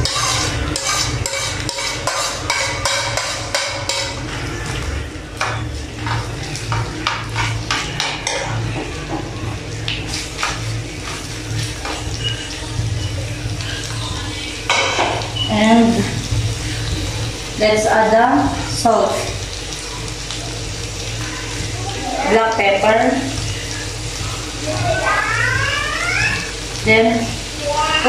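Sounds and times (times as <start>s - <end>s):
spoon scraping plate and pan: 0.0s - 4.2s
light frying sizzle: 0.0s - 28.0s.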